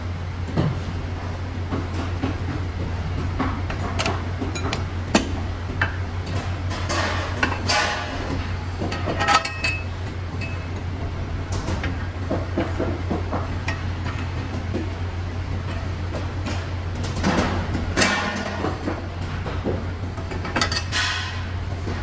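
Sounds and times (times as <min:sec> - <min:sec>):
steady low hum: 0:00.0 - 0:22.0
metal parts clinking and scraping: 0:08.9 - 0:10.7.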